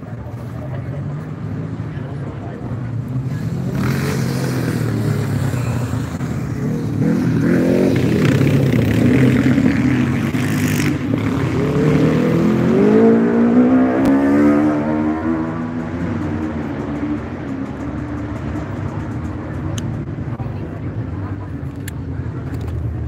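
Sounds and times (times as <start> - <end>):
motorcycle engine revving hard: 3.5 - 16.9.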